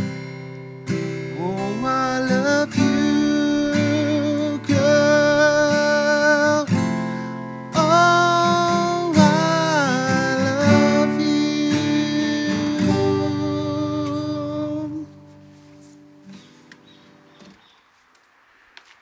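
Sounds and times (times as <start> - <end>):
acoustic guitar strummed: 0.0 - 17.6
man singing wordless notes: 1.3 - 15.2.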